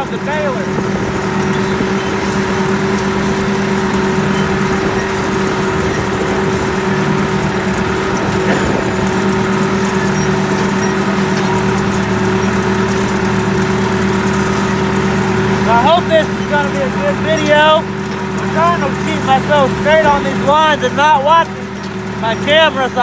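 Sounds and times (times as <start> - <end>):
tractor diesel engine running: 0.0 - 23.0.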